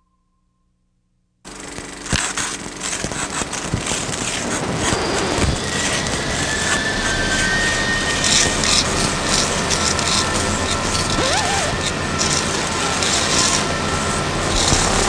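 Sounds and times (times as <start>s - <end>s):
faint high whistling tone: 0.0s - 0.8s, 5.0s - 9.0s
crackling clicks: 1.5s - 7.5s, 8.2s - 13.6s
dense rushing and rumbling noise: 2.9s - 15.0s.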